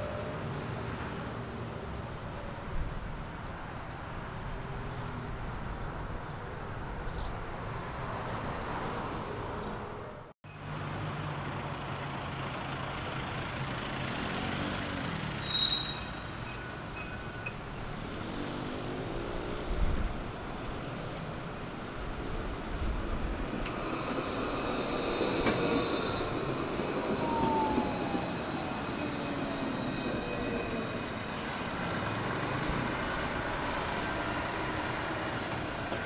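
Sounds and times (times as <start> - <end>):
city street traffic: 0.0 - 36.0
high squeal: 15.4 - 17.6, 23.8 - 33.1.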